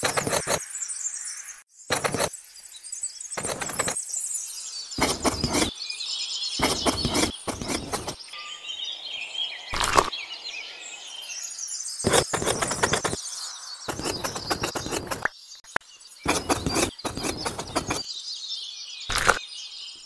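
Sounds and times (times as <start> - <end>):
trowel scraping wet mortar: 0.0 - 0.6, 1.9 - 2.3, 3.4 - 4.0, 5.0 - 5.7, 6.6 - 8.2, 12.1 - 13.2, 13.9 - 15.3, 16.3 - 18.0
birds chirping: 0.0 - 20.0.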